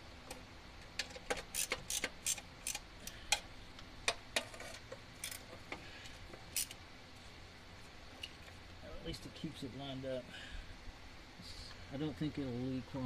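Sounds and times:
socket wrench clicking: 1.3 - 3.4.

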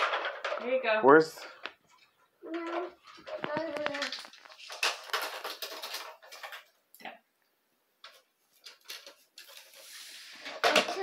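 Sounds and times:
light clicking and rustling: 1.6 - 6.8.

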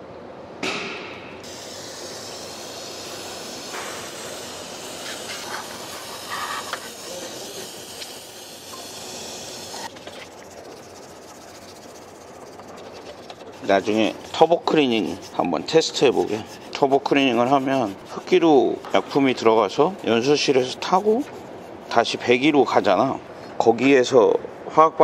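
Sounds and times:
aerosol spray hissing: 1.4 - 21.3.

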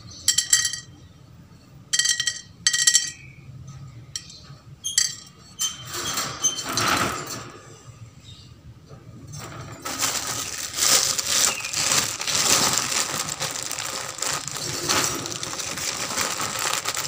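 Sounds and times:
wire cage rattling: 4.2 - 7.8, 9.2 - 17.0
rustling scrape: 9.4 - 17.0.

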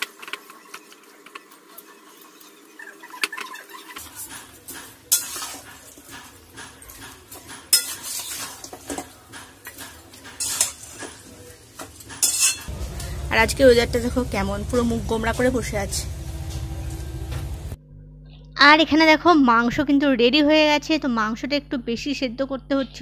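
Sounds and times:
metal spatula scraping pan: 4.2 - 11.3, 12.0 - 13.2.

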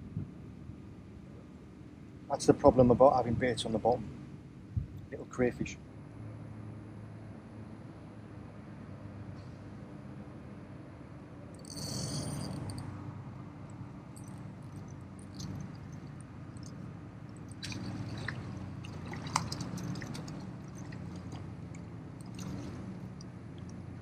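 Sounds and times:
steady low hum: 0.0 - 24.0
fish splashing and thrashing in water: 14.2 - 24.0.

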